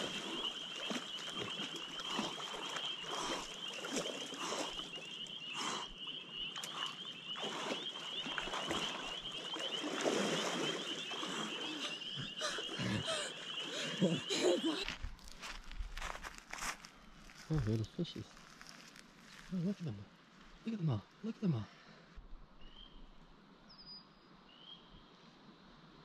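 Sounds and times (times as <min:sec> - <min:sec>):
water splashing: 0:00.0 - 0:14.8.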